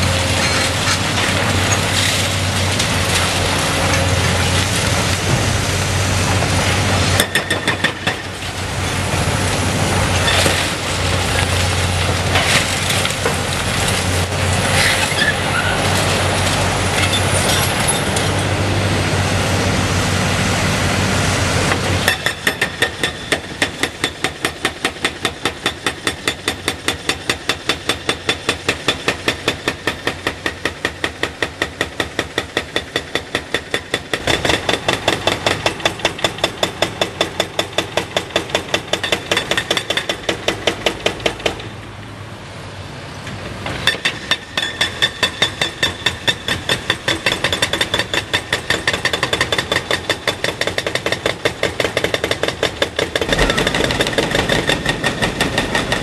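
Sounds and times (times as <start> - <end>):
excavator engine running hard: 0.0 - 7.2, 7.9 - 22.1, 46.2 - 56.0
hydraulic breaker hammering: 43.8 - 56.0
hydraulic breaker grinding concrete: 45.1 - 56.0.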